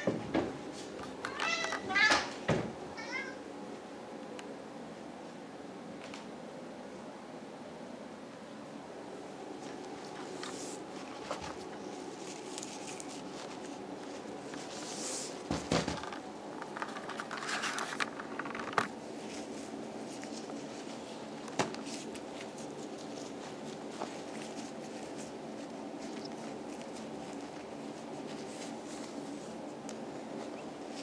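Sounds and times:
steady low hum: 0.0s - 31.0s
paper bag rustling: 9.6s - 29.7s.

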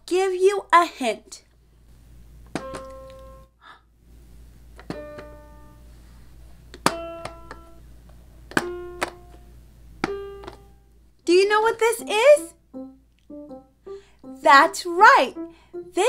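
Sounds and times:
toy piano electronic tones: 12.0s - 16.0s.

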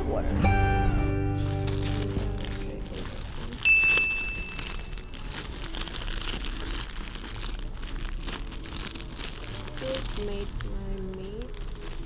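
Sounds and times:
plastic bag crinkling: 0.9s - 12.0s
sharp high ding: 3.7s - 4.6s.

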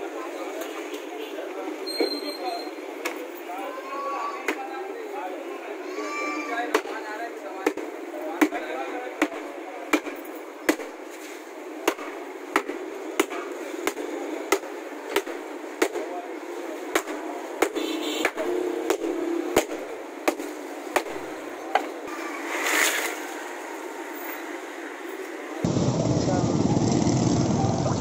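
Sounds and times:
rush of noise: 25.6s - 28.0s.

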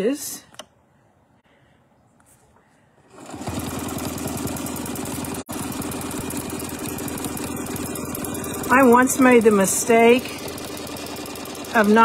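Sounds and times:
sewing machine stitching: 3.1s - 12.0s.

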